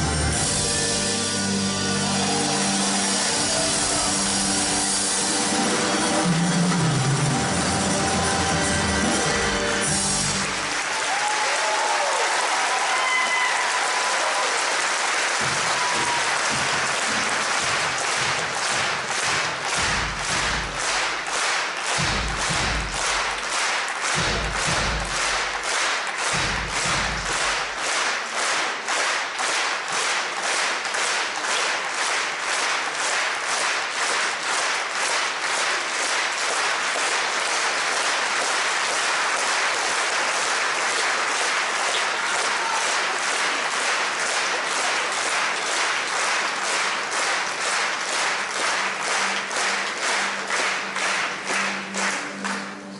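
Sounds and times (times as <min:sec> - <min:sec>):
audience clapping in unison: 0:01.4 - 0:52.9
low thuds: 0:15.4 - 0:21.2, 0:22.0 - 0:23.4, 0:24.2 - 0:25.6, 0:26.4 - 0:27.7.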